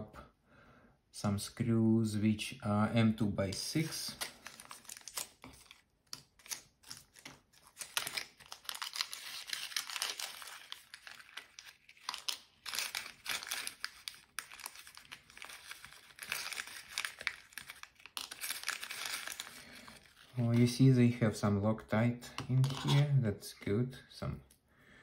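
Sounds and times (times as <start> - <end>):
plastic bag crinkling: 4.0 - 20.8.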